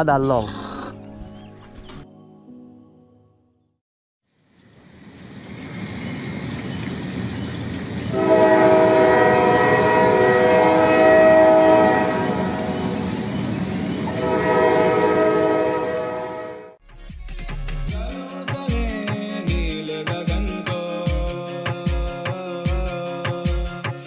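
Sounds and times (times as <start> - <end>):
train rumble: 4.4 - 16.6
train horn chord: 8.1 - 13.0, 14.1 - 16.8.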